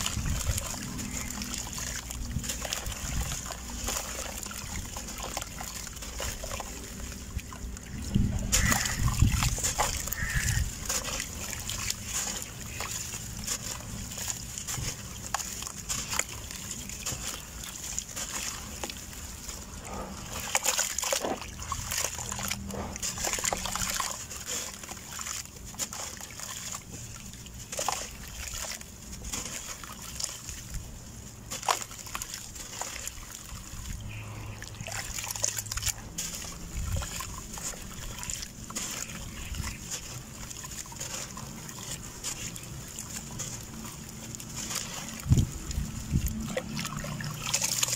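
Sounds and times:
water splashing and sloshing: 0.0s - 47.9s.

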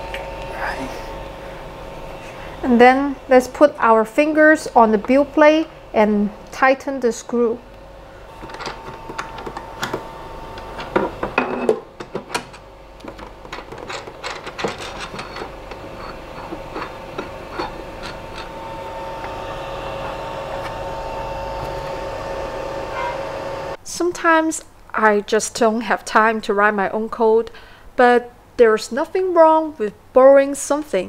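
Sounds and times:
two-tone steady hum: 0.0s - 24.0s.

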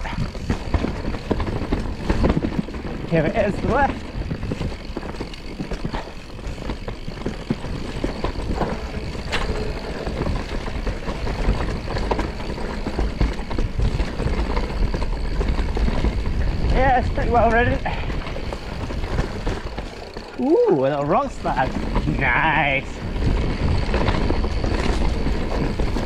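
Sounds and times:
bike knocks and rattles: 0.0s - 26.0s
tyres rumbling on dirt trail: 0.0s - 26.0s.

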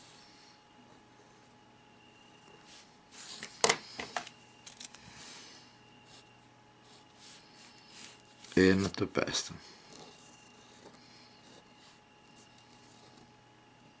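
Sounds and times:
pen scratching on paper: 9.9s - 13.3s.

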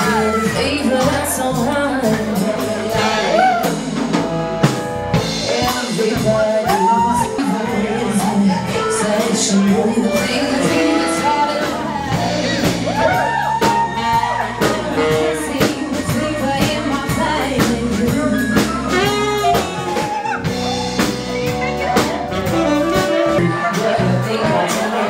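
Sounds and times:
woman singing: 0.0s - 3.7s, 5.3s - 12.3s, 13.1s - 20.1s, 23.0s - 25.0s
drum kit beat: 0.0s - 25.0s
saxophone: 0.0s - 25.0s.

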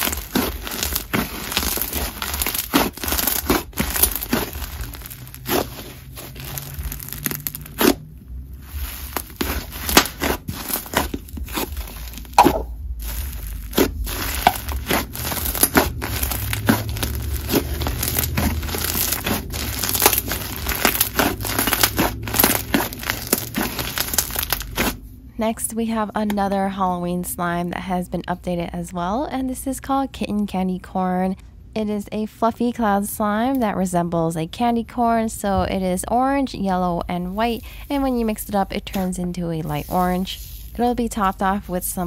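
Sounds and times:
slime squished by hand crackling: 0.0s - 8.0s, 8.6s - 25.0s.

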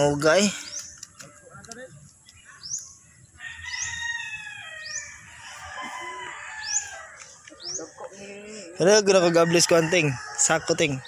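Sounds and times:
small bird chirping: 0.3s - 4.0s, 6.6s - 8.8s
rooster crowing: 3.4s - 7.2s, 9.1s - 11.0s.

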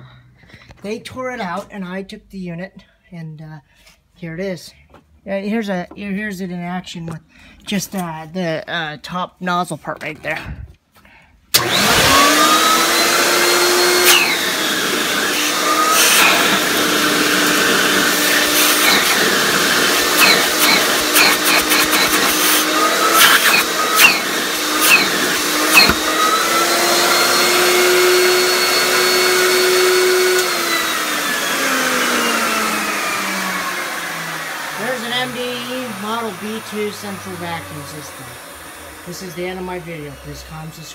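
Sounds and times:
vacuum motor whine: 11.6s - 40.9s.

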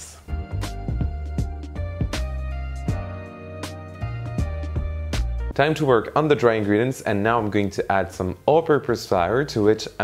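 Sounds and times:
instrumental music with beat: 0.2s - 5.6s.

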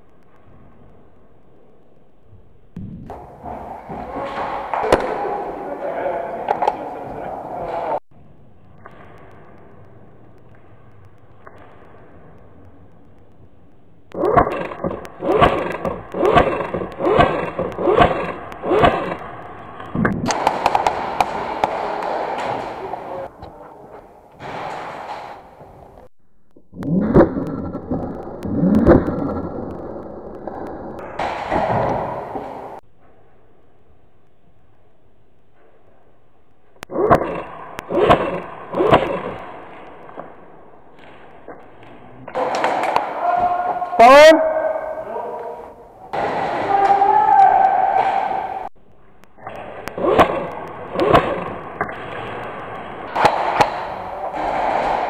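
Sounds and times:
airsoft gunshots in a hall: 3.0s - 10.3s, 14.1s - 19.5s, 20.1s - 23.3s, 24.3s - 26.0s, 31.0s - 32.8s, 37.0s - 48.8s, 49.4s - 55.0s
sharp clicks: 14.1s - 22.9s.

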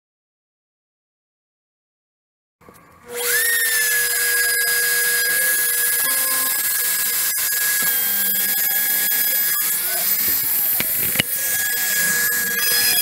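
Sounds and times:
router spindle motor whining: 3.1s - 13.0s.

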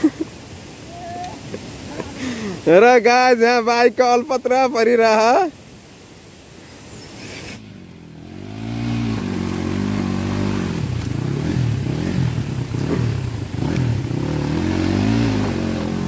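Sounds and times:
dirt bike engine revving: 7.6s - 16.0s.

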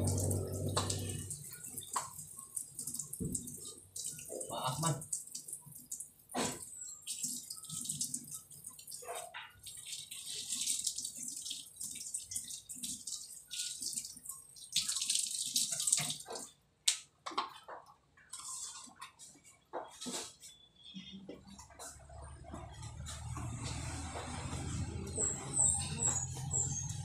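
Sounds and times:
water splashing and pouring: 0.0s - 16.6s.

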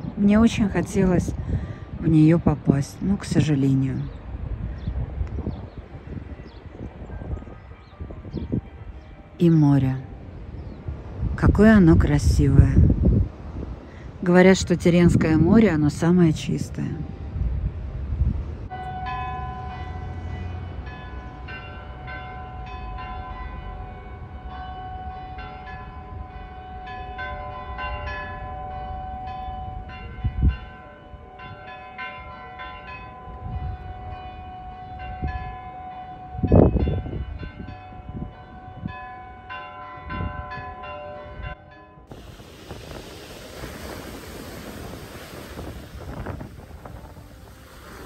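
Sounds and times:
wind rumble on microphone: 0.0s - 18.9s, 27.7s - 31.6s, 33.2s - 39.4s, 40.0s - 48.0s
church bells pealing: 18.7s - 44.0s.

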